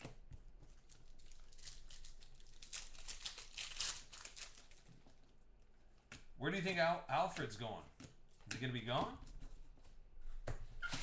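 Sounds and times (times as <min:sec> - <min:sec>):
foil wrapper crinkling and tearing: 0:00.8 - 0:05.4.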